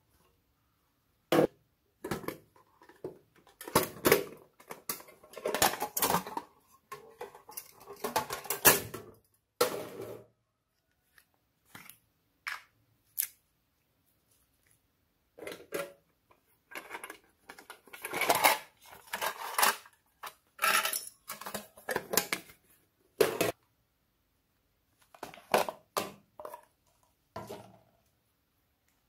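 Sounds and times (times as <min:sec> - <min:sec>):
tin box and plastic case handled: 0:15.4 - 0:22.6.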